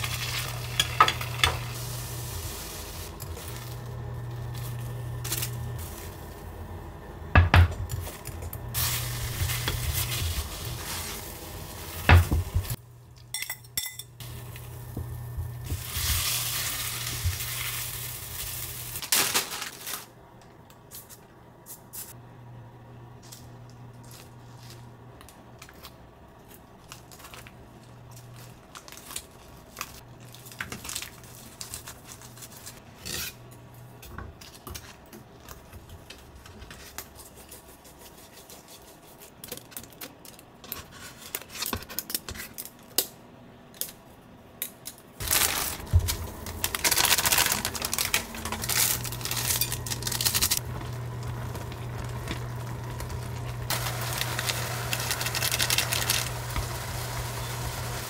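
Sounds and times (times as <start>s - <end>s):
noodles bubbling in pan: 45.2s - 58.0s.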